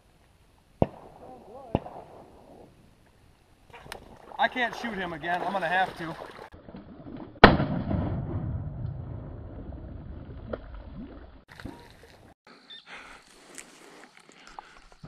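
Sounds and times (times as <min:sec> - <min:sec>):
open marsh background: 0:00.0 - 0:07.6, 0:09.1 - 0:15.0
shotgun blast rumble and echo: 0:00.8 - 0:02.6, 0:07.4 - 0:09.6.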